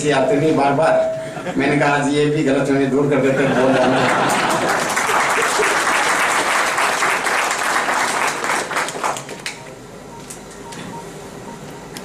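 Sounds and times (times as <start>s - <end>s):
audience applauding: 4.0s - 9.6s.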